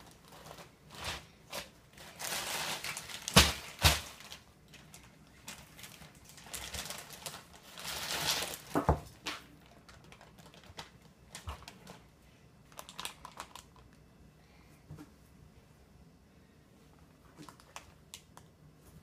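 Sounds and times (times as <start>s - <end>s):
plastic bags rustling: 0.0s - 12.1s, 12.7s - 13.8s.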